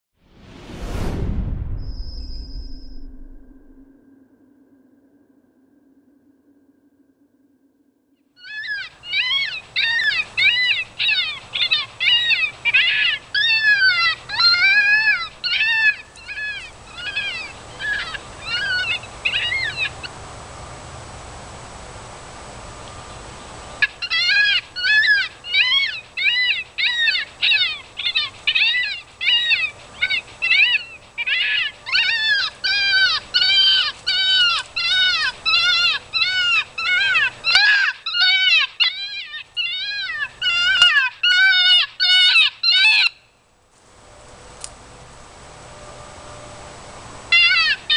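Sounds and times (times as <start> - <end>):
electronic call high yelps: 23.8 - 43.2, 47.3 - 47.9.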